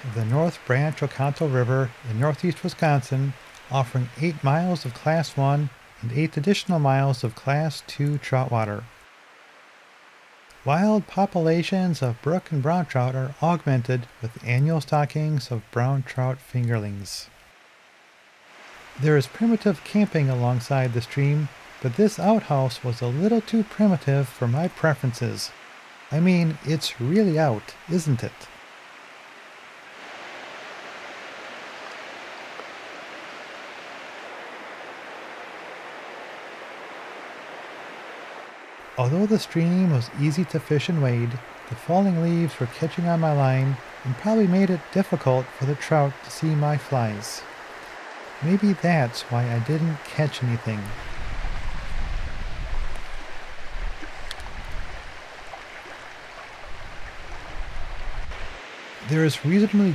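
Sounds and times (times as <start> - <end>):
brook flowing: 0.0 - 16.0, 17.3 - 59.9
brook flowing over rocks: 41.1 - 59.0
low rumble on microphone: 50.9 - 58.6.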